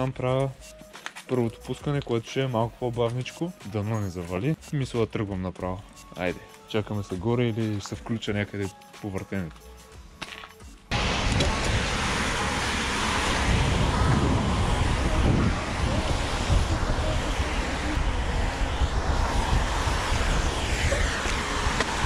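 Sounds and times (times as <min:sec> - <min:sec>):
bike tyres hissing on wet surface: 0:10.9 - 0:22.0
road traffic passing: 0:10.9 - 0:22.0
wind on microphone: 0:11.2 - 0:22.0.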